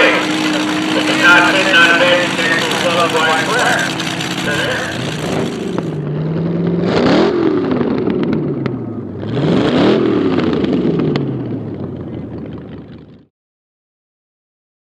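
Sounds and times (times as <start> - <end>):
dragster engine revving: 0.0 - 13.2
engine pops: 0.1 - 6.1.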